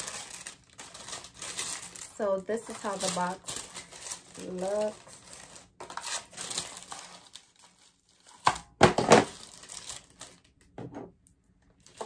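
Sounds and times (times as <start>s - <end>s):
paper crinkling and rustling: 0.0s - 10.6s, 11.8s - 12.0s.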